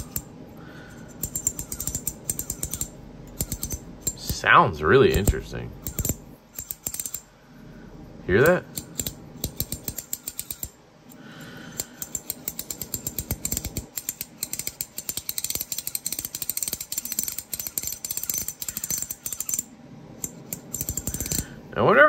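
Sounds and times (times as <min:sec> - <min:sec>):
ratchet coin clicking: 0:01.1 - 0:04.4, 0:05.1 - 0:07.3, 0:08.4 - 0:10.8, 0:11.8 - 0:21.5.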